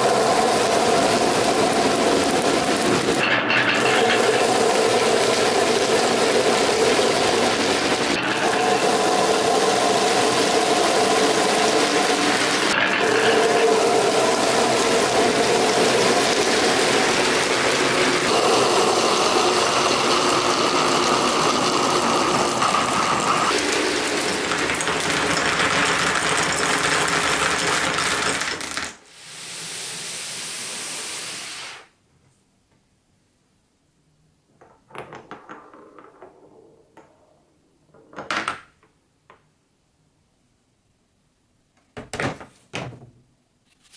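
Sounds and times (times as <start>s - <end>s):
glass marbles rattling through plastic tubes: 0.0s - 29.0s.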